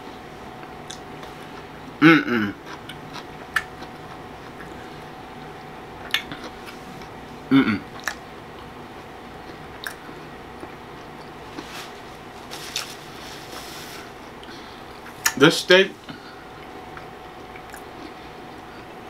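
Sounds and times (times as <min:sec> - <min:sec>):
person chewing food: 0:00.6 - 0:01.8, 0:02.5 - 0:07.2, 0:07.9 - 0:15.4, 0:16.1 - 0:19.0
throat voiced sound: 0:02.0 - 0:02.6, 0:07.5 - 0:07.9.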